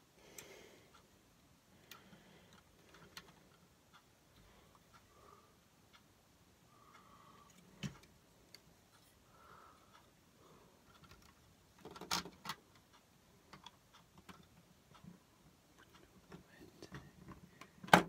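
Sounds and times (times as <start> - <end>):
plastic toy bricks clicking: 10.9 - 12.6.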